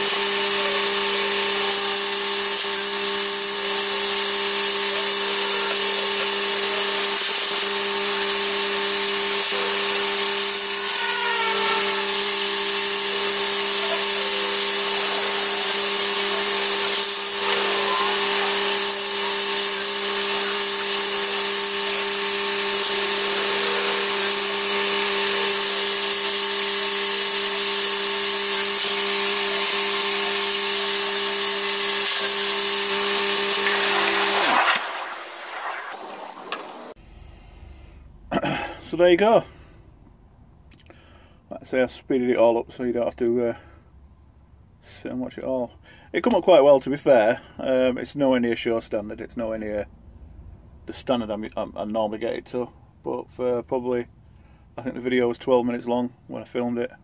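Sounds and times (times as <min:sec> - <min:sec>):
electric polisher whining: 0:00.0 - 0:37.0.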